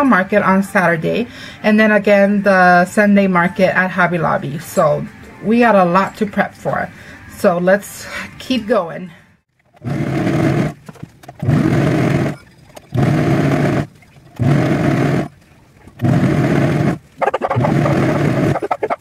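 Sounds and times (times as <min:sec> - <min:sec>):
overlock sewing machine running: 0:09.8 - 0:10.8, 0:11.4 - 0:12.4, 0:13.0 - 0:15.3, 0:16.0 - 0:17.0.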